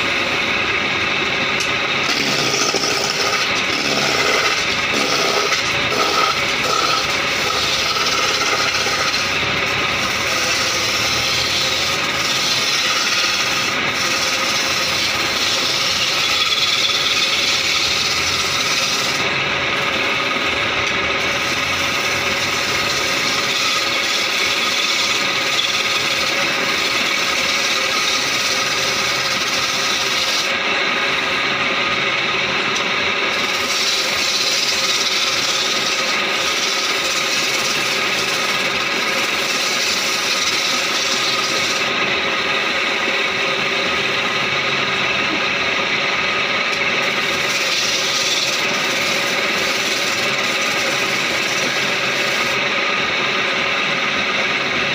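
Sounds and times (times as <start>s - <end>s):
wood lathe running: 0.0s - 54.9s
chisel scraping wood on lathe: 1.6s - 31.4s, 33.2s - 44.4s, 46.6s - 52.7s.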